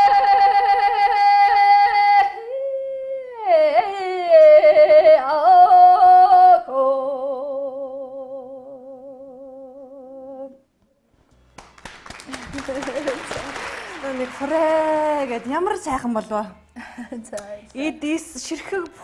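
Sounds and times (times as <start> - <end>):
woman singing unaccompanied: 0.0 - 10.6.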